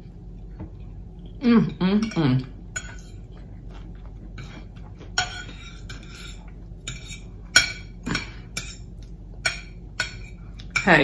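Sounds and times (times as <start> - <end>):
metal fork clinking on a plate: 5.2 - 11.0.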